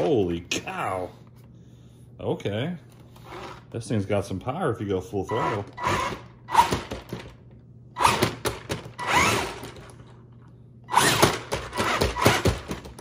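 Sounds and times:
toy tank motors whining: 5.3s - 7.0s, 8.0s - 9.9s, 10.9s - 13.0s.

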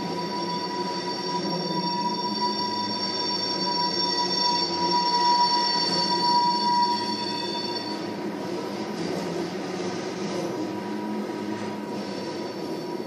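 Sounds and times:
high-pitched wheel squeal: 0.0s - 8.3s.

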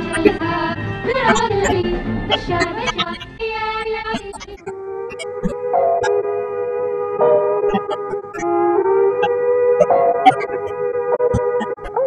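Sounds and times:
woman singing: 0.0s - 4.6s
instrumental backing: 0.0s - 12.0s.

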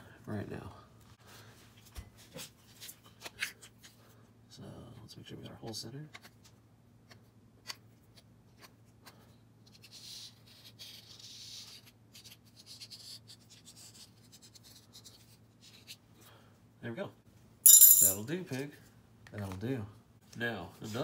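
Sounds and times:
marker scratching on metal: 9.6s - 16.0s.

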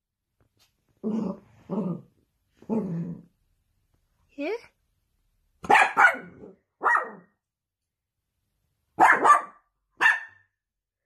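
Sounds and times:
dog barking: 5.6s - 7.4s, 9.0s - 10.6s.

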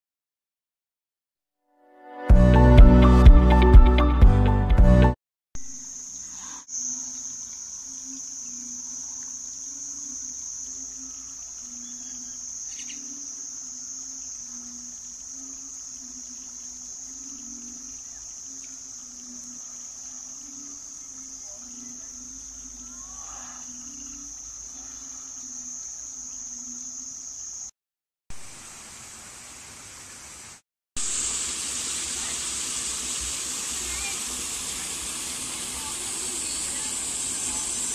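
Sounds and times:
high-pitched insect chorus: 5.6s - 27.8s, 31.0s - 37.9s.

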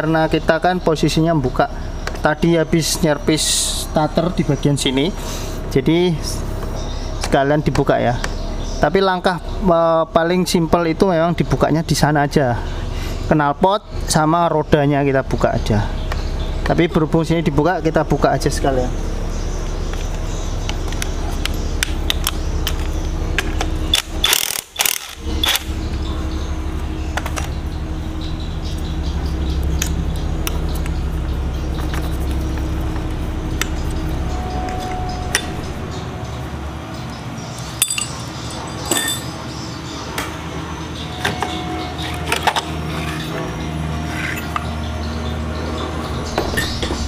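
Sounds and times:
steady low hum: 0.0s - 47.0s
metal hand tools clinking: 37.8s - 39.4s.

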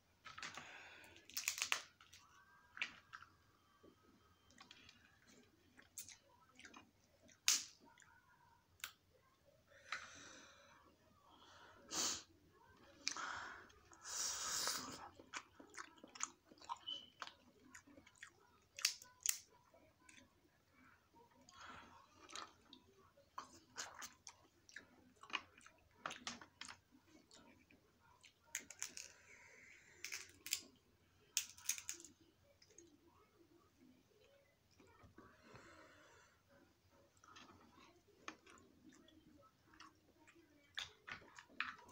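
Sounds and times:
person chewing: 0.3s - 8.2s, 13.0s - 20.3s, 23.4s - 29.1s
crab shell cracking: 1.2s - 2.2s, 28.5s - 29.1s, 30.0s - 30.7s, 31.4s - 32.1s.

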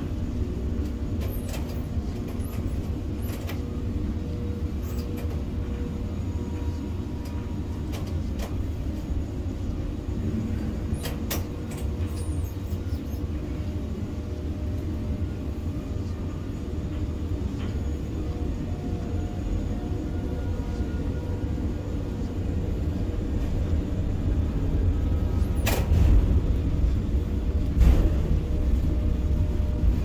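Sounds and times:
low machinery hum: 0.0s - 30.0s.

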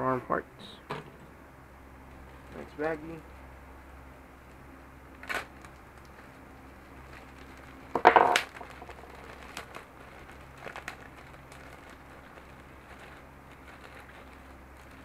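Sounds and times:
plastic bag tearing open: 5.2s - 6.2s, 7.0s - 15.0s
plastic rustling and clicking: 5.2s - 15.0s.

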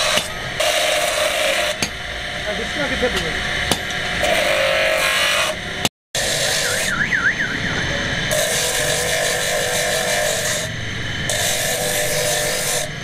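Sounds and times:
machine motor hum and hiss: 0.0s - 13.0s
warbling siren-like tone: 6.5s - 8.3s.

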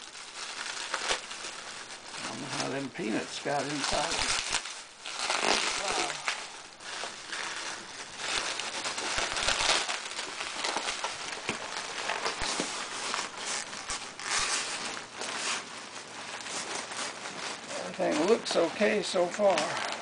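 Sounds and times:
bubble wrap crinkling: 0.0s - 20.0s.

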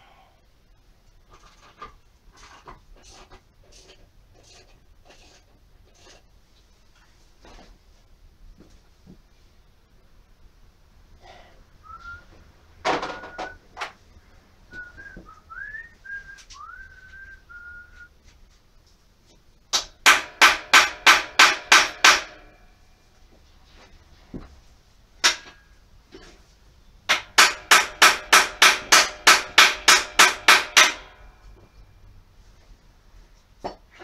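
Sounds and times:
person whistling: 11.8s - 12.3s, 14.7s - 18.1s.

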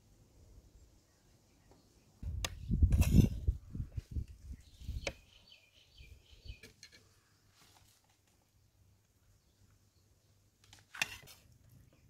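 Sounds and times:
metal spoon scraping plastic plate: 2.9s - 3.5s, 10.9s - 11.4s.

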